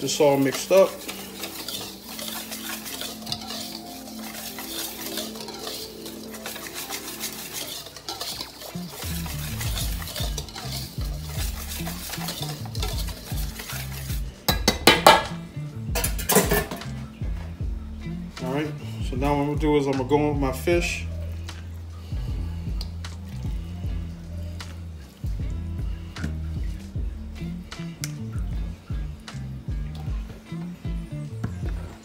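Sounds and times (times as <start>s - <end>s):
wire whisk scraping metal bowl: 0.0s - 15.3s, 16.0s - 16.8s.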